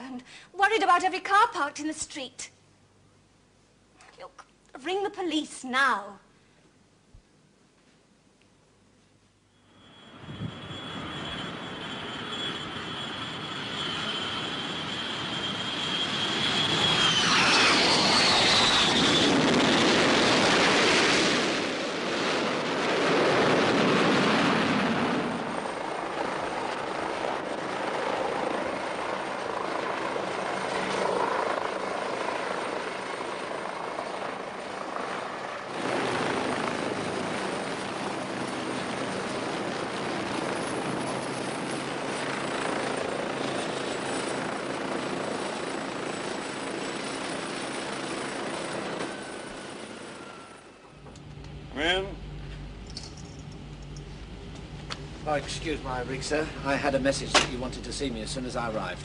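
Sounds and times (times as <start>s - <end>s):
helicopter flying: 9.6s - 59.0s
jet engine roar: 9.7s - 31.8s.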